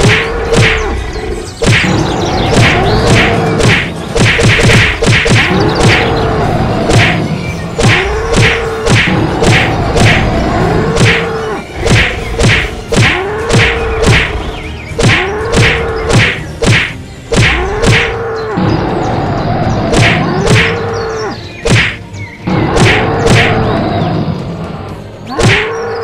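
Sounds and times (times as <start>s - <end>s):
cartoon whacks: 0.0s - 1.0s, 1.6s - 6.2s, 6.9s - 10.3s, 10.9s - 14.4s, 15.0s - 18.2s, 19.9s - 20.8s, 21.6s - 22.0s, 22.6s - 23.7s, 25.3s - 25.7s.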